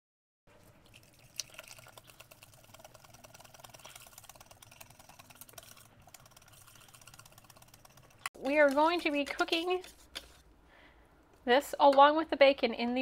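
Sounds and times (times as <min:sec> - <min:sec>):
whisk beating batter in bowl: 0:01.4 - 0:08.3.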